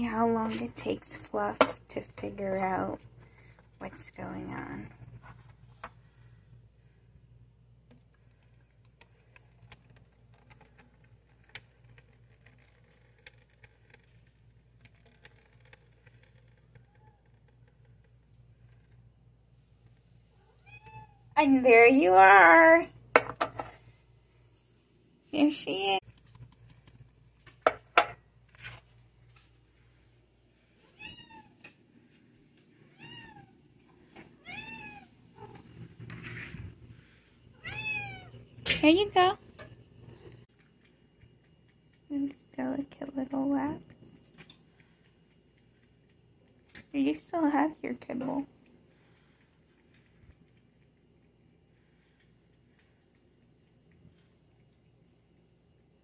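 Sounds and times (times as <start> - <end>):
cat meowing: 20.4 - 21.2, 31.0 - 31.5, 34.4 - 35.5, 37.6 - 38.4.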